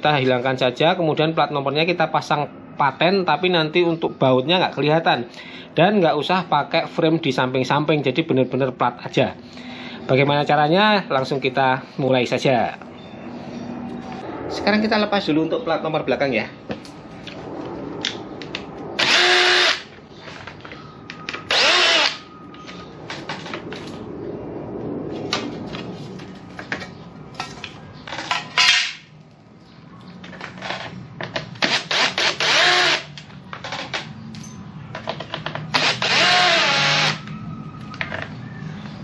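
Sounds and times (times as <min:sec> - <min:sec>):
cordless drill motor whine: 0:19.0 - 0:19.9, 0:21.4 - 0:22.3, 0:31.7 - 0:33.2, 0:35.7 - 0:37.9.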